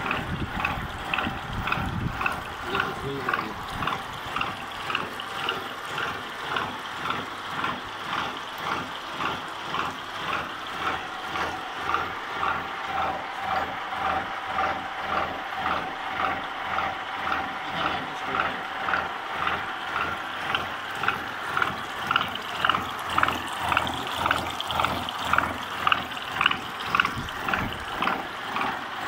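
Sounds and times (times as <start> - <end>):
milling machine pulsing: 0.0 - 29.0.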